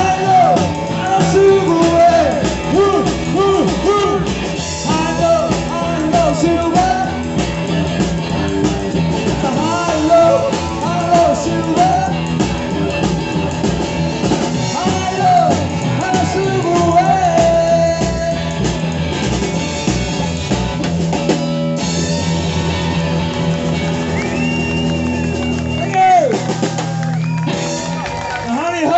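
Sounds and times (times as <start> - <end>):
person singing: 0.0 - 13.0, 14.5 - 18.6
drums: 0.0 - 28.9
electric guitar: 0.0 - 28.9.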